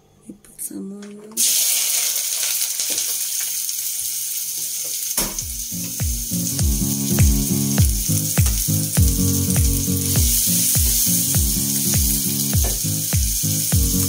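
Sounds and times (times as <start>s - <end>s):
onions sizzling in a pot: 1.4s - 14.0s
music with a steady beat: 5.3s - 14.0s.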